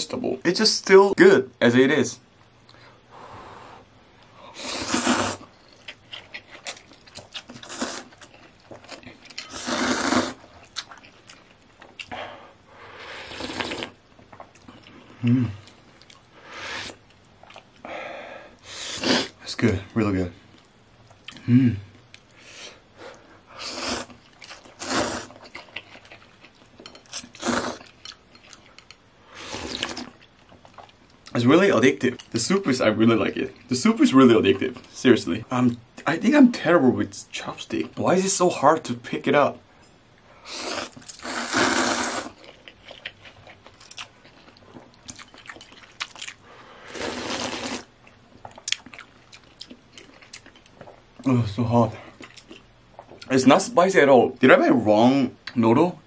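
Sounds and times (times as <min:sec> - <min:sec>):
person slurping noodles: 0:04.5 - 0:05.5, 0:07.6 - 0:08.1, 0:09.4 - 0:10.5, 0:13.0 - 0:14.0, 0:18.7 - 0:19.4, 0:23.6 - 0:24.2, 0:24.8 - 0:25.4, 0:27.2 - 0:27.9, 0:40.5 - 0:42.4, 0:46.9 - 0:47.9.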